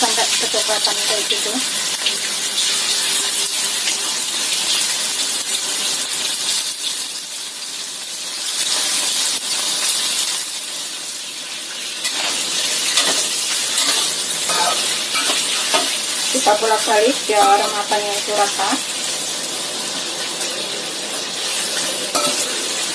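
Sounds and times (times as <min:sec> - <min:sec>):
chicken sizzling in hot oil: 0:00.0 - 0:22.9
spatula scraping a wok: 0:12.0 - 0:18.6, 0:21.4 - 0:22.9.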